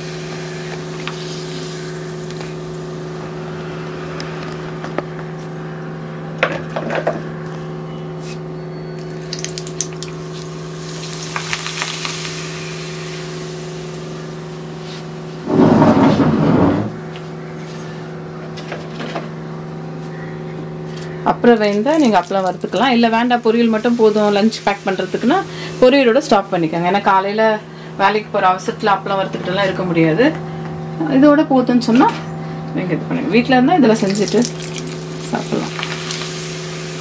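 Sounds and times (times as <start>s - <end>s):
oil sizzling: 0.0s - 3.6s, 9.0s - 16.9s, 21.6s - 29.4s, 33.9s - 37.0s
electrical hum: 0.0s - 37.0s.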